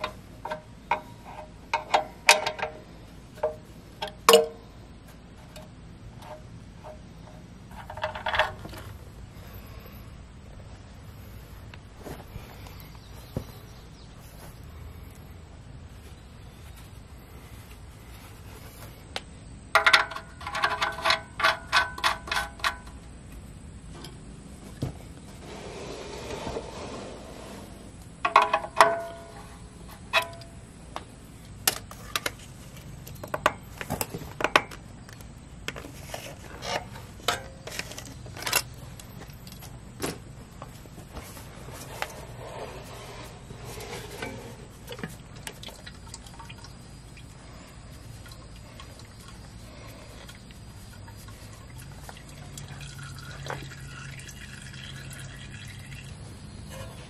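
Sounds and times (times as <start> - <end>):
oil filter clicks and scrapes: 0.0 - 4.6, 5.4 - 9.0, 19.8 - 23.0, 31.7 - 39.7, 41.1 - 46.8
oil draining into pan: 51.7 - 56.2.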